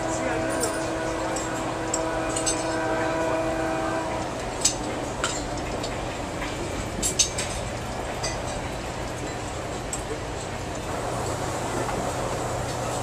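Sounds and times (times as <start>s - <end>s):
train horn chord: 0.0s - 4.7s
train car running rumble: 0.0s - 13.0s.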